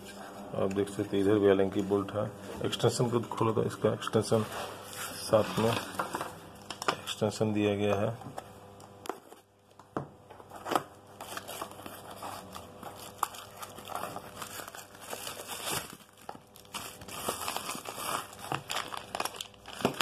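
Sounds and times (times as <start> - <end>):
plastic crinkling and rustling: 4.2 - 7.1, 10.5 - 20.0.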